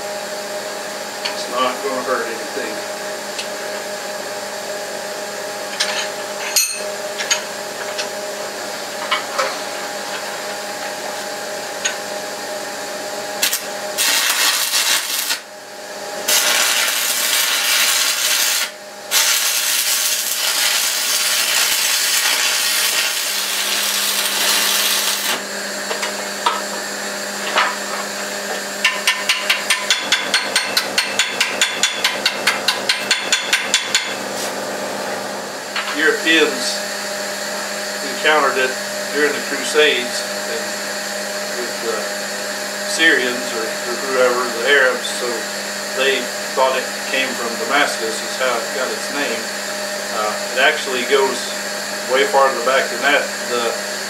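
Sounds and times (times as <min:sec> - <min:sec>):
steady background hum: 0:00.0 - 0:54.0
stick welder crackling hiss: 0:13.4 - 0:15.5, 0:16.2 - 0:25.4
chipping hammer tapping metal: 0:28.8 - 0:34.2.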